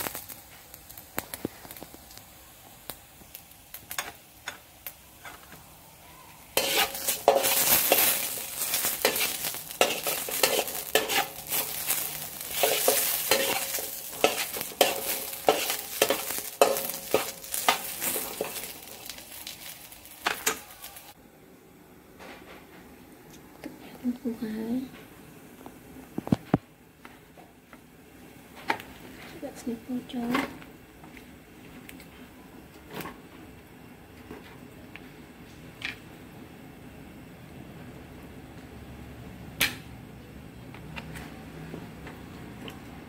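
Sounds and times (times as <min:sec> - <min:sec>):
metal spatula scraping a wok: 0:06.6 - 0:21.0.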